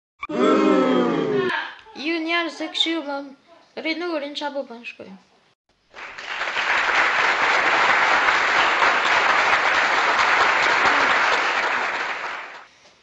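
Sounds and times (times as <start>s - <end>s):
crowd applauding: 5.9s - 12.7s.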